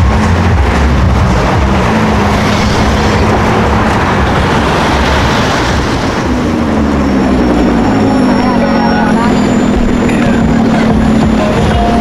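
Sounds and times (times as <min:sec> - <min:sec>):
car engines and tyre noise: 0:00.0 - 0:12.0
engine note rising: 0:00.0 - 0:12.0
minivan going by: 0:00.0 - 0:12.0.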